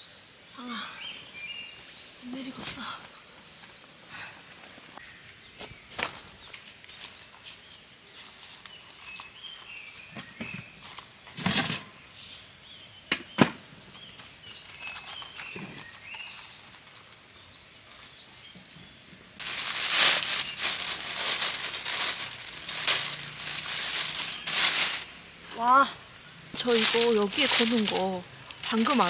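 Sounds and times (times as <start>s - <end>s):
small birds chirping: 0.0s - 29.0s
plastic bag rustling: 19.4s - 25.3s, 26.6s - 29.0s.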